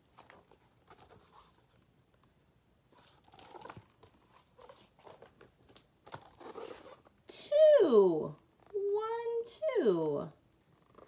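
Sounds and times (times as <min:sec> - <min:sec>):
book pages rustling: 0:00.0 - 0:07.2.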